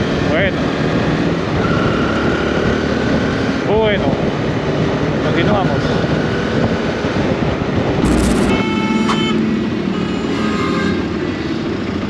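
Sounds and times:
city traffic: 0:00.0 - 0:12.0
motorcycle engine and wind: 0:00.0 - 0:12.0
short rushing burst: 0:08.0 - 0:08.6.

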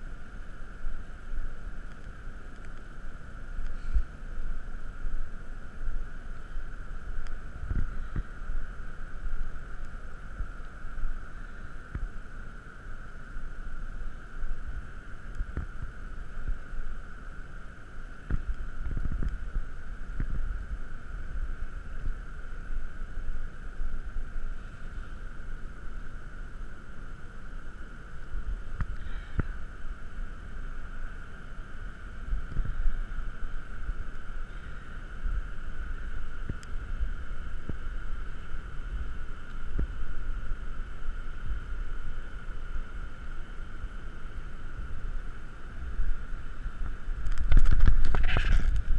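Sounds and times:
steady high hum: 0:00.0 - 0:48.9
wind rumble on microphone: 0:00.0 - 0:48.9.

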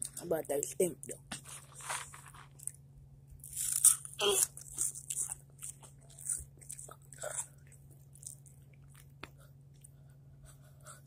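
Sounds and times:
chips crunching: 0:03.4 - 0:09.1
chewing: 0:03.4 - 0:10.6.

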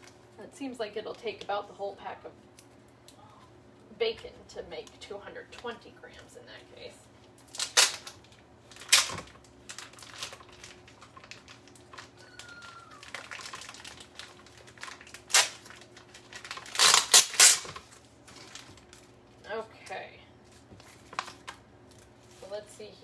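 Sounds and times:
plastic packaging crinkling: 0:07.2 - 0:19.4, 0:20.4 - 0:22.5.

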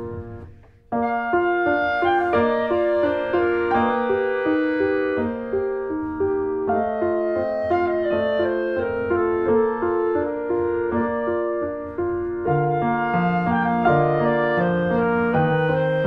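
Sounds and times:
slow instrumental melody with piano: 0:00.0 - 0:16.0.

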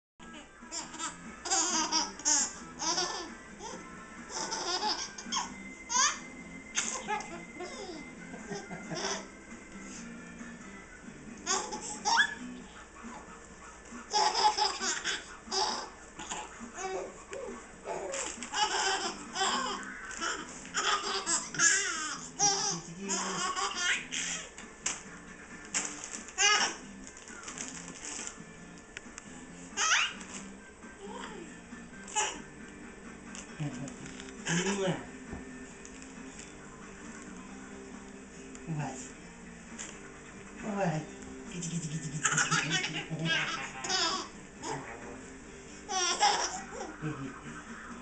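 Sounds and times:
infant giggling: 0:00.7 - 0:06.2, 0:06.8 - 0:09.3, 0:14.1 - 0:24.5, 0:41.7 - 0:44.8, 0:45.9 - 0:48.0
baby laughing: 0:00.7 - 0:09.3, 0:11.4 - 0:13.3, 0:14.0 - 0:24.5, 0:26.4 - 0:26.8, 0:29.8 - 0:30.2, 0:32.1 - 0:32.4, 0:41.6 - 0:44.9, 0:45.9 - 0:48.0.

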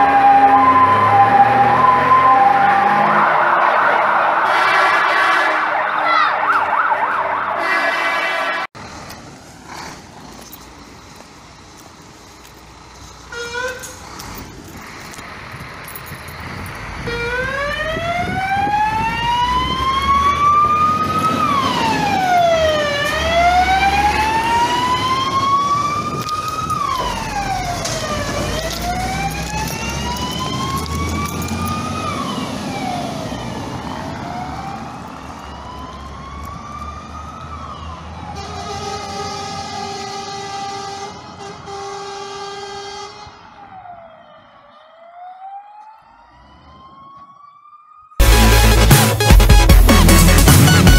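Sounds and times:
fire engine siren wailing: 0:00.0 - 0:08.8, 0:13.3 - 0:48.9
steady vehicle horn: 0:04.4 - 0:06.6, 0:07.4 - 0:08.7, 0:38.4 - 0:43.4
truck engine rumble: 0:08.6 - 0:44.6, 0:48.2 - 0:50.9.

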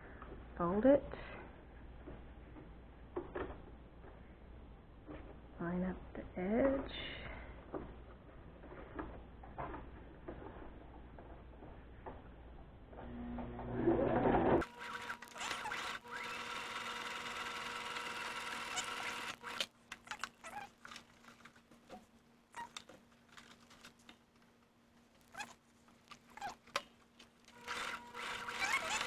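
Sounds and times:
sewing machine running: 0:13.1 - 0:19.7, 0:27.5 - 0:29.0.

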